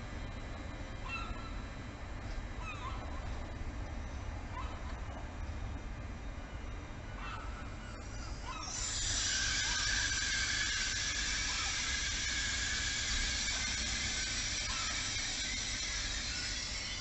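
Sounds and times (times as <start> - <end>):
train brakes squealing: 7.7 - 17.0.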